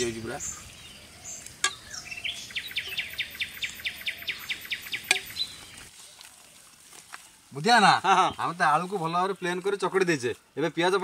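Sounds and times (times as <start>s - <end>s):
bird chirping rapidly: 0.0s - 5.9s.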